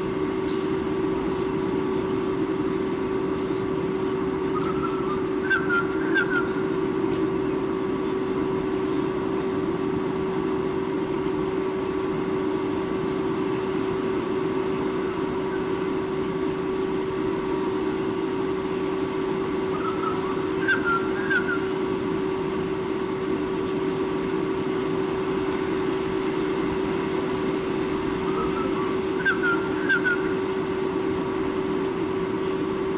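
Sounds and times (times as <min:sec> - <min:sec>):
constant low hum: 0:00.0 - 0:32.9
outdoor background noise: 0:00.0 - 0:32.9
short bird calls: 0:00.4 - 0:00.9, 0:04.5 - 0:06.8, 0:19.7 - 0:21.8, 0:28.2 - 0:30.4.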